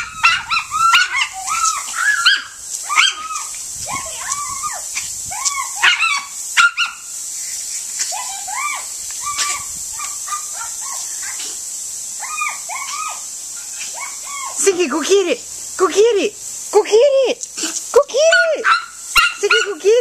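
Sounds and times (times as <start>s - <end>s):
small dog yipping and whining: 0.0s - 7.0s, 8.2s - 11.4s, 12.2s - 14.6s.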